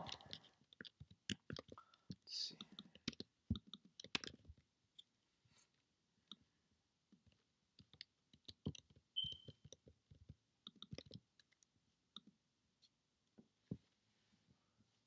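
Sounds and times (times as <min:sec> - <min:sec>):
keyboard and mouse clicks: 0:00.0 - 0:04.6, 0:07.3 - 0:12.4.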